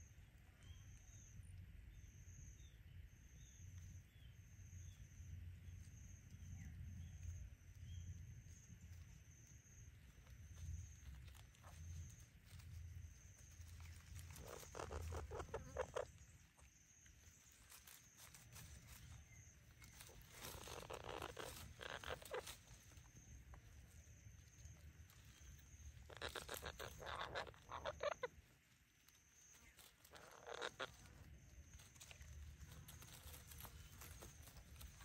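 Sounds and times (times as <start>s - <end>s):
footsteps crunching dry leaves: 11.3s - 16.2s, 17.2s - 23.0s, 29.5s - 35.0s.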